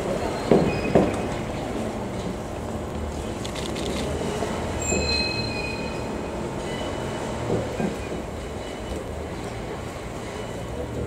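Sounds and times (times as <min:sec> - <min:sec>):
low train rumble: 0:00.0 - 0:11.0
train wheels squealing: 0:00.2 - 0:01.4, 0:04.8 - 0:11.0.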